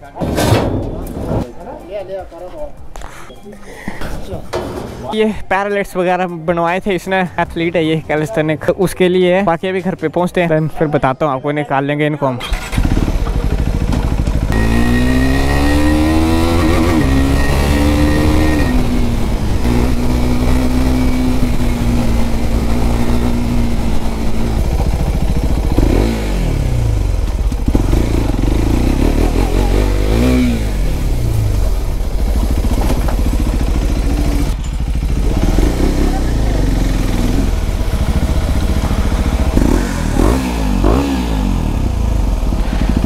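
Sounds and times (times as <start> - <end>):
motorcycle engine revving: 12.4 - 43.0.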